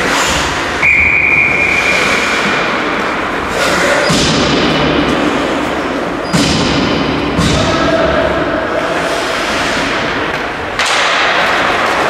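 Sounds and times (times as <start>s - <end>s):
thud: 6.3s - 7.9s.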